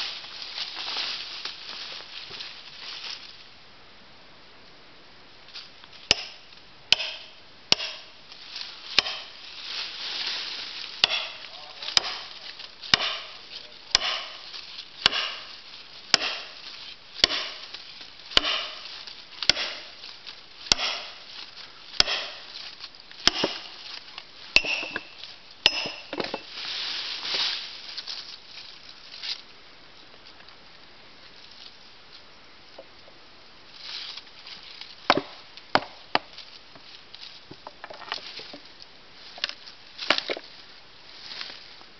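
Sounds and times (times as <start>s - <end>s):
hammer striking steel wedges: 6.1s - 8.1s, 9.0s - 9.4s, 11.0s - 12.3s, 12.9s - 13.4s, 14.0s - 14.4s, 15.0s - 15.5s, 16.1s - 16.6s, 17.2s - 17.6s, 18.4s - 18.8s, 19.5s - 19.9s, 20.7s - 21.2s, 22.0s - 22.5s, 23.3s - 23.7s, 24.6s - 26.4s.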